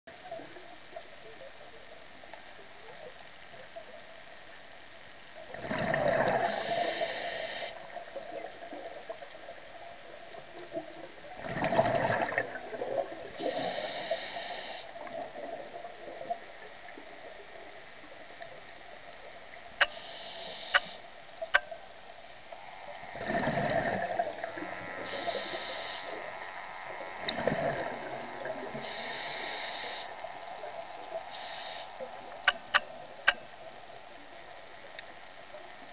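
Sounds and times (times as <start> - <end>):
diver breathing through regulator: 6.0 - 7.8, 13.4 - 15.0, 19.8 - 21.0, 23.1 - 26.3, 28.7 - 30.3, 31.2 - 32.7
sharp clicks: 20.7 - 21.7, 32.5 - 33.4
air bubbles rushing: 23.1 - 24.8, 27.2 - 28.8.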